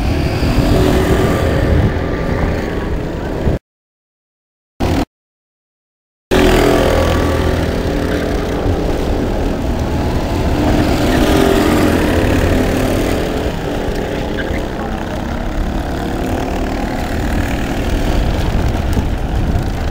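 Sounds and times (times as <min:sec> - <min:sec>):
go-kart engines running: 0:00.0 - 0:03.6, 0:04.8 - 0:05.0, 0:06.3 - 0:19.9
kart engine idling: 0:06.3 - 0:19.9.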